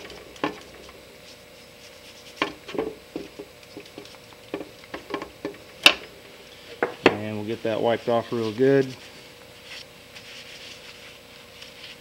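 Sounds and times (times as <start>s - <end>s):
brush scrubbing metal in bucket: 1.2s - 4.2s, 10.1s - 12.0s.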